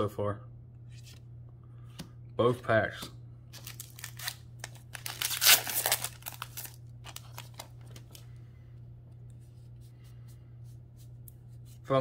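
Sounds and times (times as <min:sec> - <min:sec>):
foil wrapper tearing and crinkling: 0:03.6 - 0:08.2.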